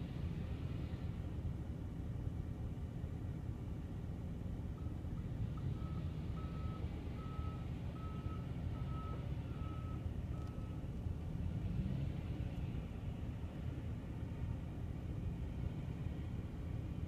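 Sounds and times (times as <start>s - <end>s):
low engine rumble: 0.0s - 17.0s
reversing alarm beeping: 5.8s - 10.8s.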